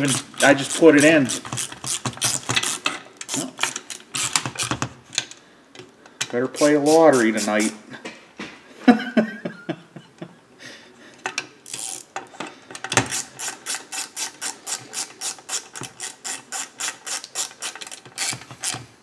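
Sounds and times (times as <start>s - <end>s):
hand ratchet clicking: 0.0s - 4.8s, 11.7s - 12.2s, 12.9s - 18.9s.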